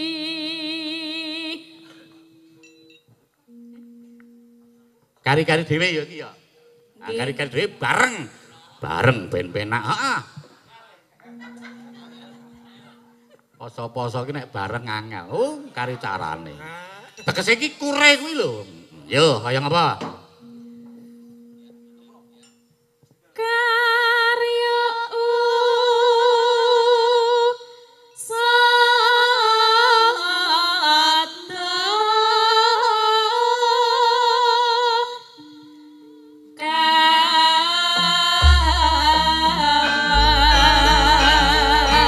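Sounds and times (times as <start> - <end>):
women singing with vibrato: 0.0 - 2.1, 23.4 - 35.6, 36.6 - 42.0
deep gamelan strokes: 2.1 - 8.4, 11.3 - 13.4, 20.2 - 22.8, 38.0 - 42.0.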